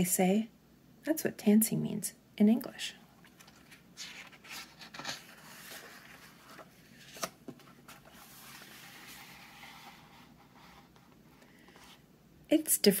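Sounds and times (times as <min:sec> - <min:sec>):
book page turning: 0:03.2 - 0:12.0.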